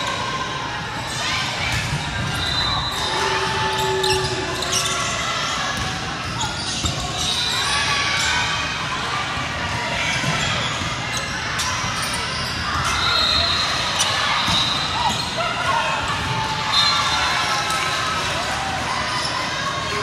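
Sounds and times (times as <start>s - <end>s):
voices echoing in hall: 0.0s - 20.0s
sneakers squeaking on court: 5.8s - 7.8s.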